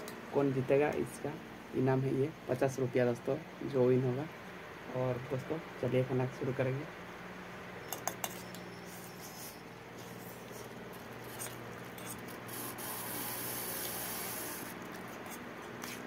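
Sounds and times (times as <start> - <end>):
spoons scraping on steel plates: 7.9 - 10.6, 11.3 - 12.3.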